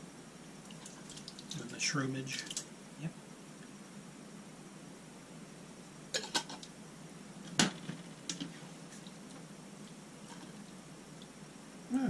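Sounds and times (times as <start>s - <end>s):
light ticks of stirring: 0.6s - 1.7s.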